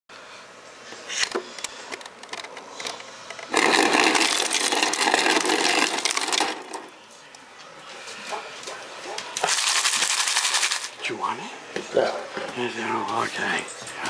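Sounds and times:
ice dispenser motor whirring: 3.4 - 6.9
crushed ice clattering into bowl: 3.5 - 6.9, 9.4 - 10.9.

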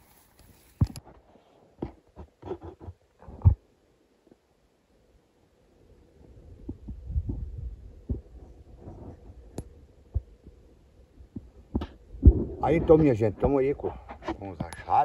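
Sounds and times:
low thuds: 11.3 - 14.2.

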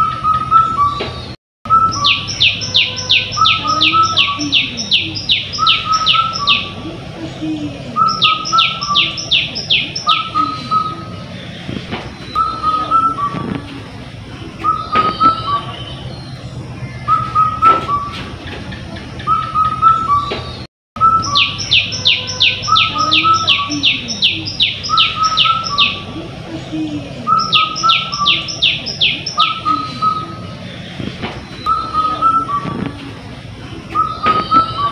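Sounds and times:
high falling whistled bird notes: 0.0 - 6.8, 8.0 - 11.2, 12.2 - 13.5, 14.6 - 18.2, 19.2 - 26.1, 27.3 - 30.4, 31.5 - 32.8.

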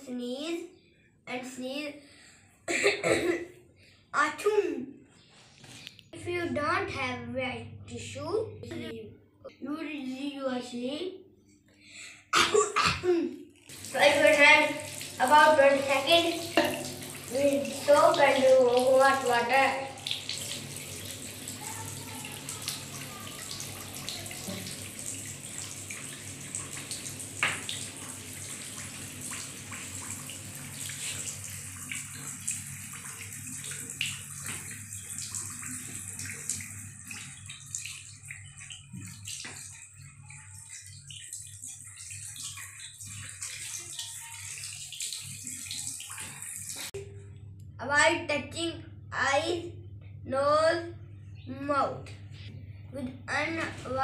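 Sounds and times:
tap water splashing into basin: 13.7 - 47.0.

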